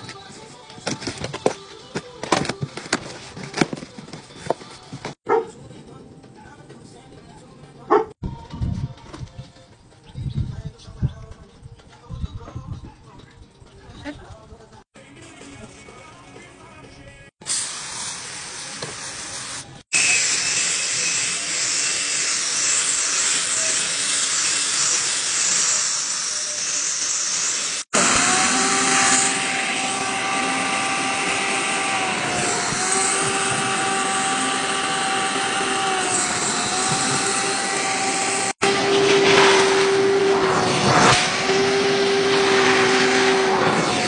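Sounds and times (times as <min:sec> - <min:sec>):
drill spinning scrub brush: 0:18.0 - 0:44.0
carpet extractor suction whine: 0:26.3 - 0:44.0.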